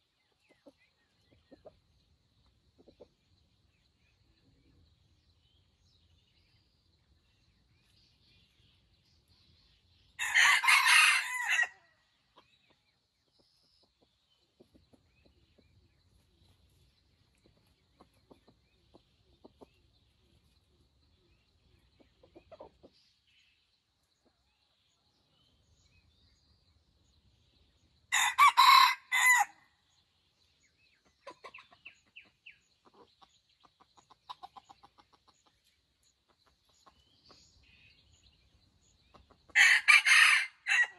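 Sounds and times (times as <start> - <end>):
chicken clucking: 0.3 - 3.5, 12.3 - 23.1, 31.0 - 37.4
rooster crowing: 10.2 - 11.8, 28.1 - 29.6, 39.6 - 40.9.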